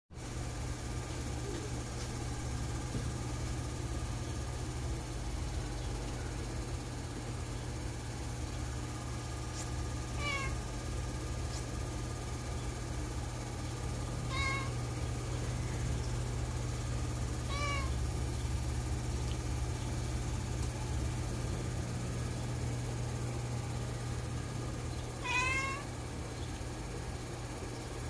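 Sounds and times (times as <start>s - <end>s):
steady low hum: 0.2s - 28.0s
cat meowing: 10.2s - 10.6s, 14.3s - 14.8s, 17.4s - 18.0s, 25.2s - 25.9s.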